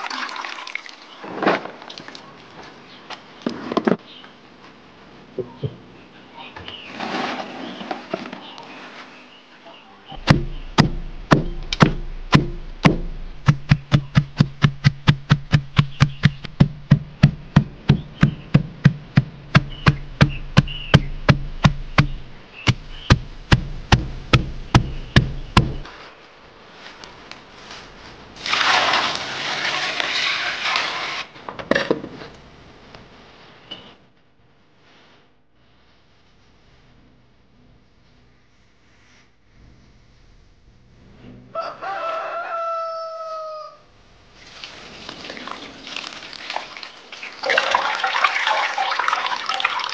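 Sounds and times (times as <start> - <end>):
wooden mallet pounding leaves: 10.2 - 25.9
steady rustling: 10.2 - 26.0.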